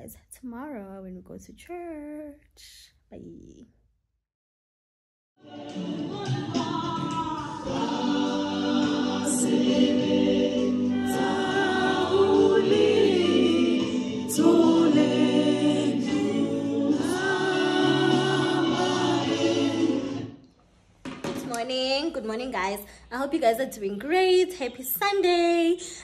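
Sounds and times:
choir singing gospel music: 5.4 - 20.5.

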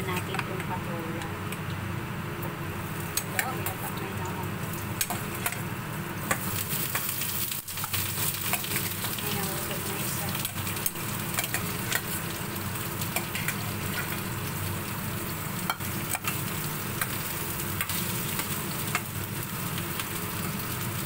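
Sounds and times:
vegetables sizzling in oil: 0.0 - 21.0
utensil clicking against pan: 3.1 - 3.6, 5.0 - 5.6, 6.2 - 7.2, 7.8 - 9.2, 10.4 - 12.2, 13.1 - 14.2, 15.7 - 16.4, 17.0 - 17.2, 17.8 - 19.1.

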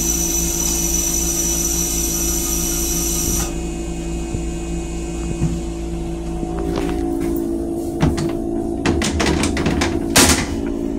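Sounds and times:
toilet flush electric whine: 0.0 - 10.9
rail car low hum: 2.6 - 10.9.

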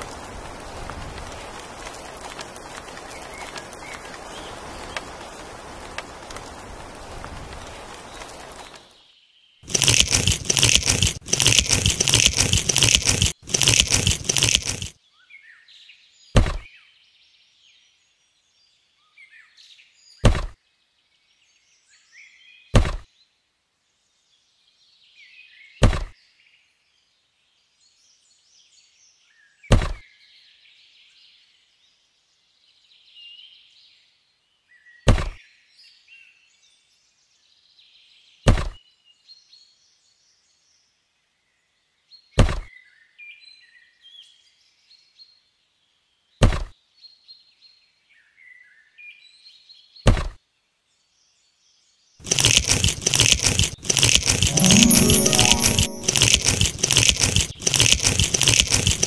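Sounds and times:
faint birdsong: 7.5 - 54.5.

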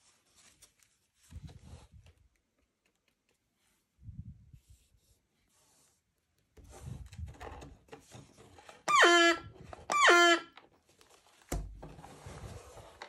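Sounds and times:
paper and card rustling: 0.0 - 3.4, 10.7 - 13.0.

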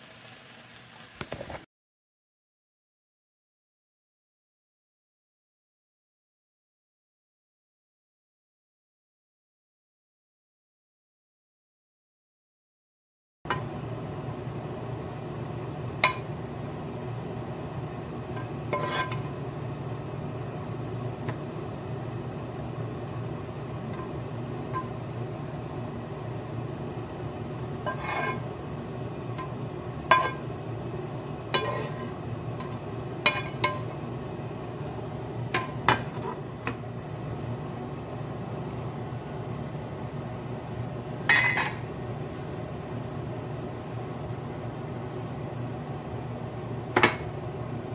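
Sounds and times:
steady low hum: 13.5 - 47.9.

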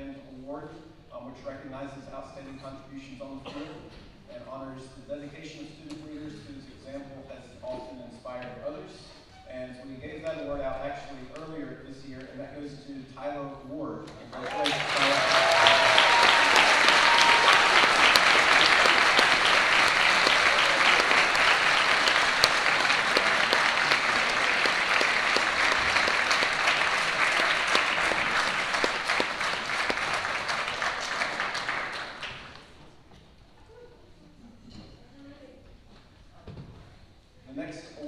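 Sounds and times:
audience applauding: 14.3 - 32.8.

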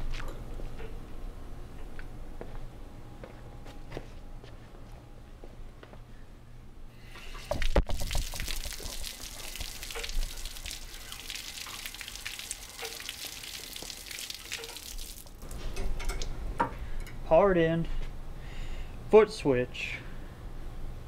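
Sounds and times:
hissing water spray: 7.6 - 15.3.

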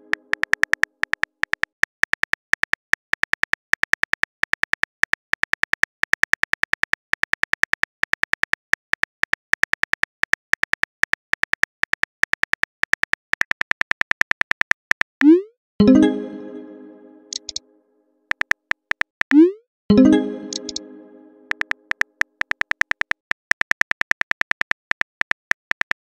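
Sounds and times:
keyboard typing clicks: 15.2 - 17.6, 18.3 - 26.0.

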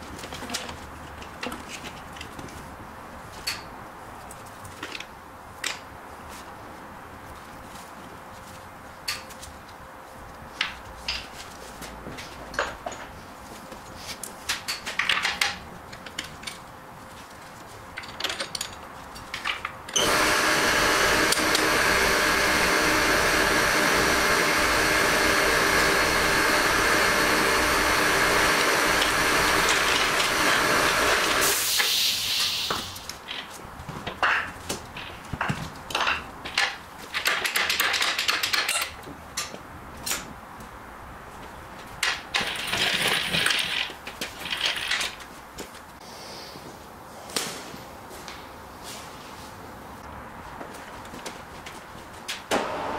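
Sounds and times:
loud motor-driven machine: 19.9 - 31.8, 52.5 - 52.9
brief high hiss: 29.6 - 33.1.

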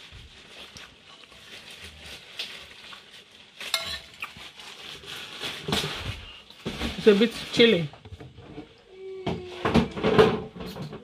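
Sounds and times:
spoon scraping a plate: 3.8 - 4.2.

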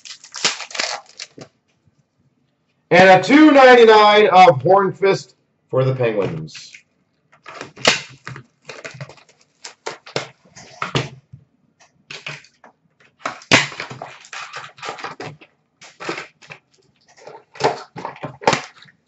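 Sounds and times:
packaging ripping: 0.0 - 1.5, 7.4 - 10.8, 13.2 - 19.0
card packs crinkling and rustling: 0.0 - 1.6, 7.4 - 11.1, 12.1 - 19.0.

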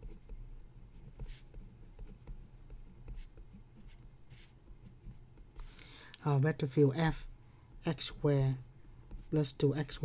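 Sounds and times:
pen scratching on paper: 0.0 - 5.2.

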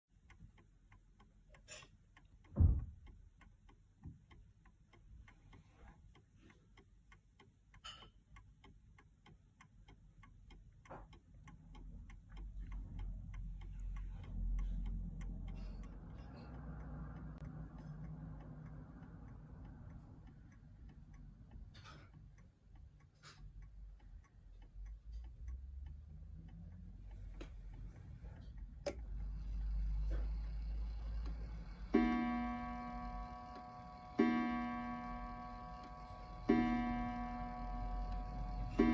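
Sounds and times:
clock ticking: 0.1 - 38.9
loud thump: 2.6 - 2.9.

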